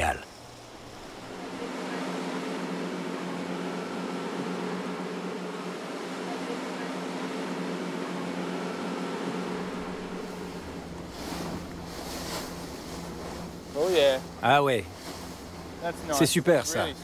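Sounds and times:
boat engine humming: 0:00.0 - 0:17.0
low wind: 0:00.0 - 0:17.0.

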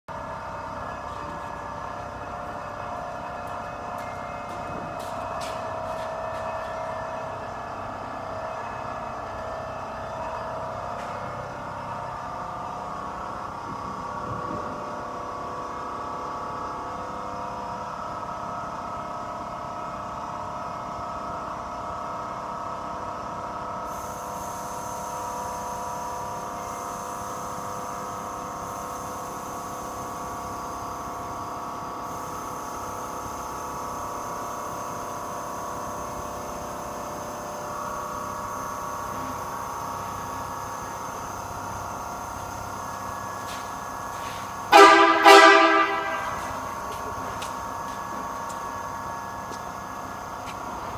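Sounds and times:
small air compressor running: 0:20.3 - 0:50.9.

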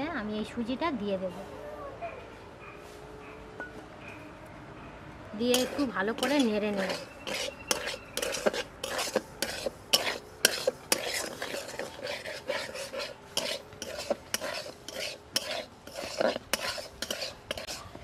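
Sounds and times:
metal spatula scraping pan: 0:05.4 - 0:18.0.

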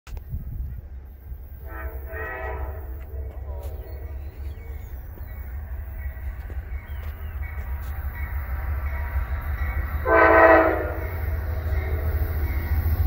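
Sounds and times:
distant train horn blast: 0:01.5 - 0:04.1, 0:07.5 - 0:12.9.

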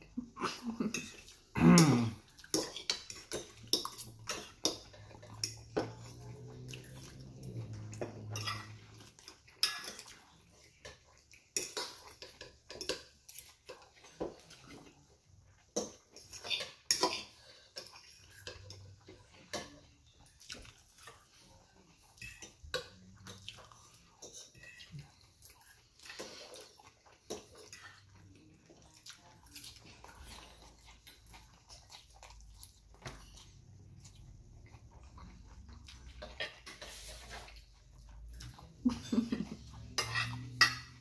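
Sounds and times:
fork scraping ceramic plate: 0:08.0 - 0:09.0, 0:40.0 - 0:41.0.

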